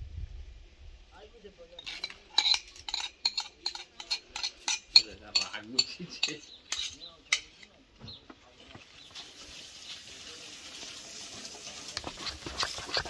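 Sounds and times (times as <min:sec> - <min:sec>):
spoons and dishes clinking: 0:01.8 - 0:07.8
steady hiss: 0:08.8 - 0:12.1
spoon scraping batter in bowl: 0:11.9 - 0:13.0.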